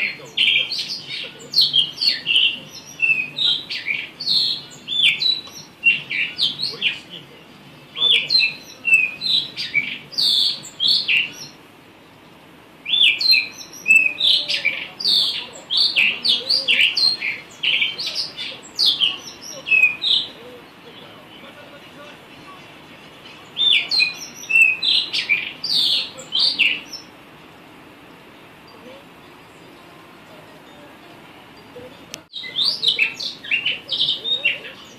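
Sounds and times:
thrush singing whistled notes: 0.0s - 21.5s, 22.3s - 27.2s, 28.2s - 34.9s.

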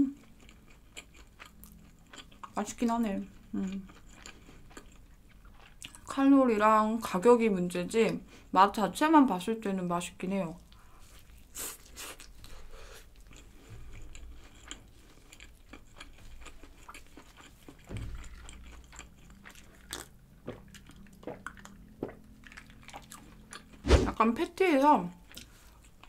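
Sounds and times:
biting into a burger: 11.2s - 21.7s
moist chewing and smacks: 13.2s - 23.8s.

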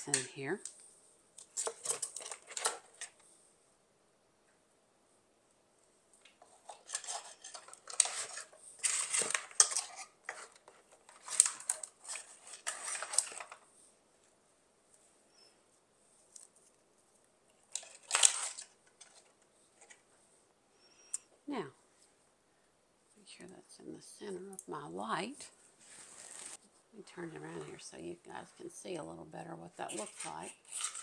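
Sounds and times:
dried stems rustling and crackling: 6.3s - 13.6s, 24.2s - 28.9s, 29.8s - 31.0s.

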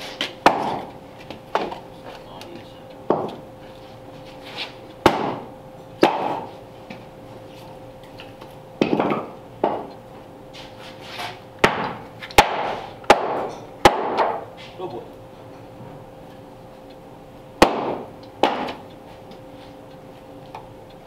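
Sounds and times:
faint steady hum: 0.0s - 21.0s
hand tool knocking on wood: 3.1s - 3.4s, 8.8s - 9.9s.

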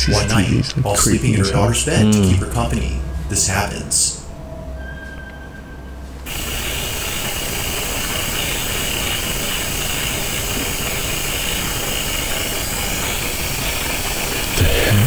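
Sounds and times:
grainy hiss: 6.3s - 15.0s.

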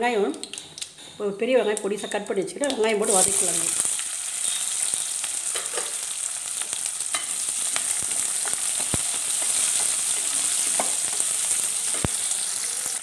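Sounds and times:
onions sizzling in hot oil: 2.6s - 13.0s.

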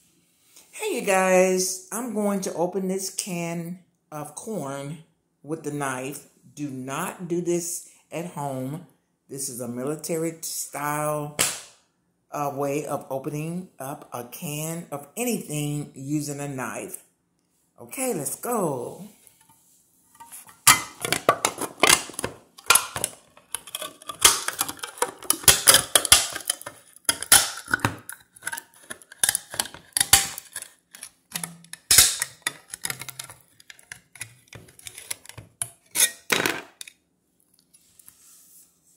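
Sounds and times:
knife cutting tin can lid: 20.2s - 36.8s.

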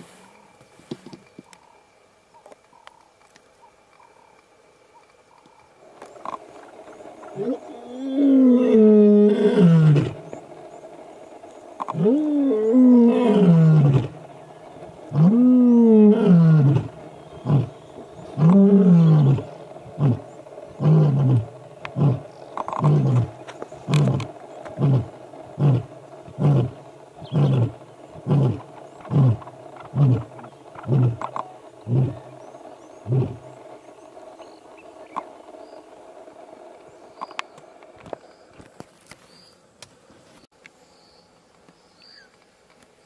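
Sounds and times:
lion roaring: 7.0s - 10.4s, 11.8s - 32.4s, 33.0s - 33.7s.

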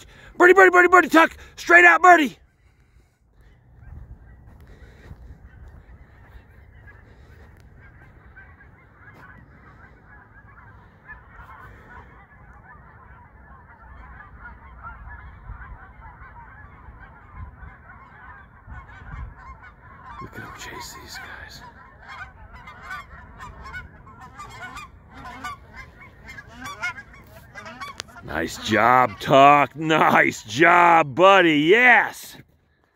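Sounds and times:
geese honking: 0.0s - 32.9s.

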